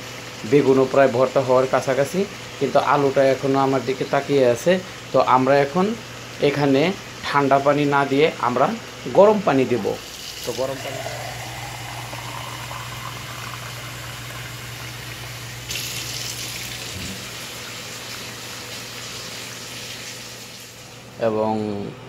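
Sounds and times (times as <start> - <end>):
tap water filling plastic cup: 10.0 - 19.2
water poured into pan: 10.0 - 20.8.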